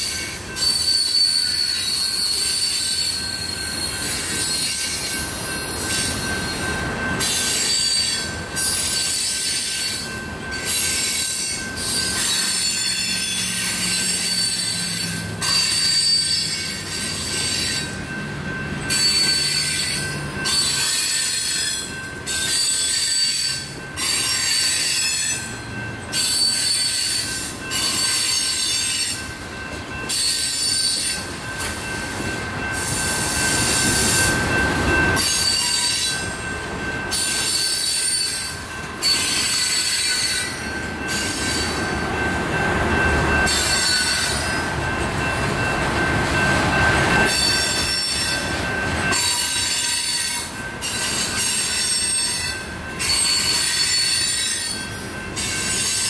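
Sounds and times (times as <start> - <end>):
train cars rumbling: 0.0 - 56.0
train wheels squealing: 0.0 - 56.0.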